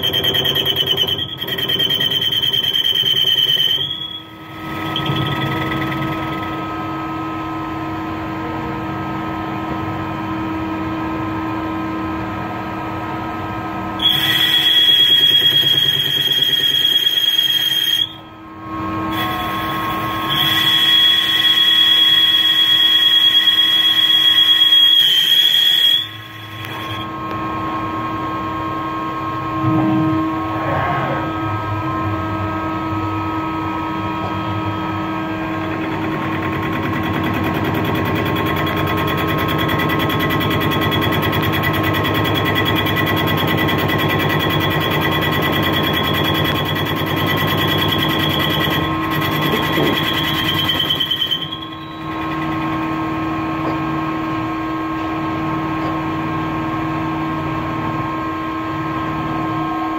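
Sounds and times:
machine rattling: 0.0s - 6.7s
lathe whining: 0.0s - 7.2s, 14.0s - 27.5s, 33.6s - 54.0s.

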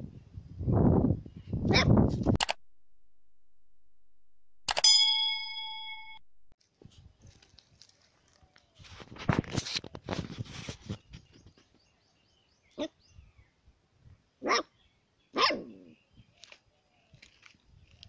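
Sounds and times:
scuffling noise: 6.6s - 11.3s
puppy yapping: 14.4s - 14.7s, 15.4s - 15.9s.

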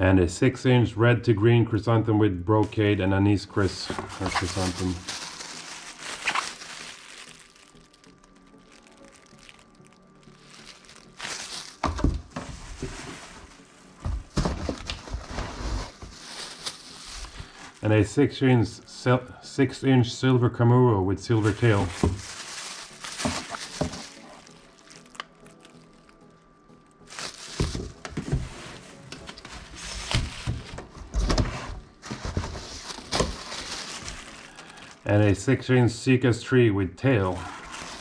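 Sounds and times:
plastic wrapping crinkling: 2.7s - 18.1s, 21.3s - 35.6s, 37.3s - 38.0s
cardboard box rustling: 3.6s - 7.2s, 10.8s - 17.8s, 21.5s - 24.5s, 27.1s - 34.6s, 37.4s - 38.0s.

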